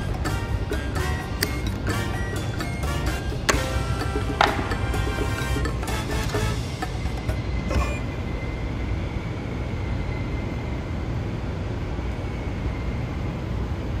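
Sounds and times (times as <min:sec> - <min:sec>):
generator running: 0:00.0 - 0:08.3.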